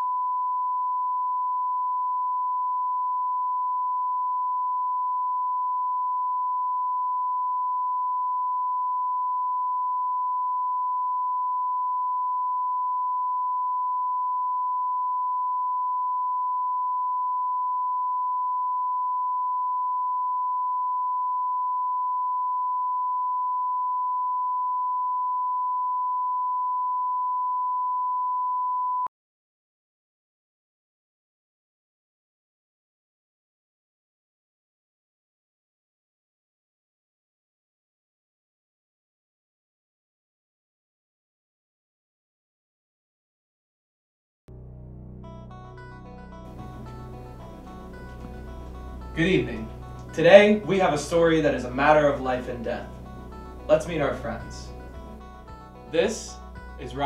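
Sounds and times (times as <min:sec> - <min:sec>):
sine reference tone: 0:00.0 - 0:29.1.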